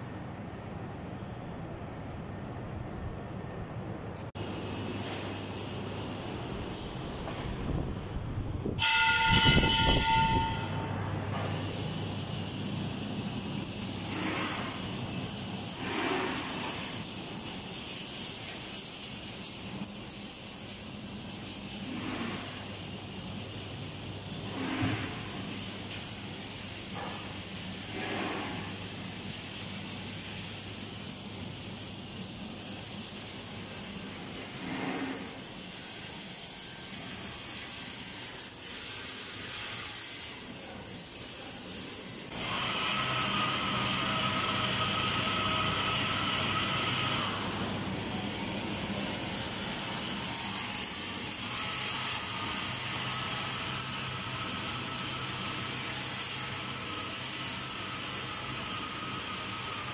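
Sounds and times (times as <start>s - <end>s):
machine hiss: 4.2s - 59.9s
steady high tone: 8.7s - 11.6s.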